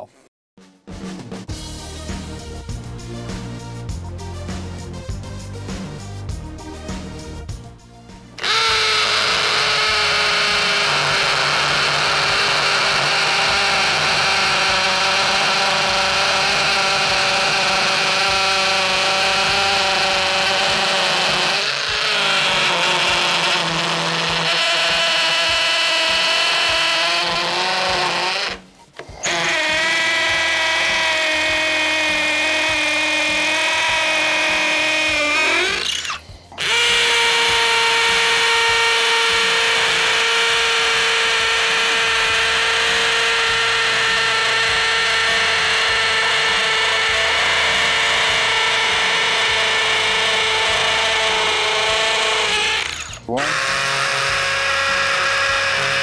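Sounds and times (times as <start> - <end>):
hammer drill boring into concrete: 8.4 - 56.0.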